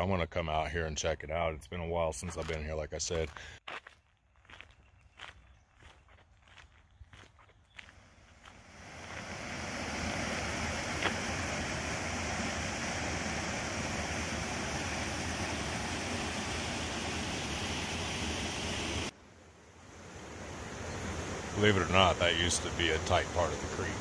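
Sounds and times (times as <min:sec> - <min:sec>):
footsteps: 0:03.2 - 0:09.3, 0:10.8 - 0:11.3
creek water rushing: 0:08.4 - 0:24.0.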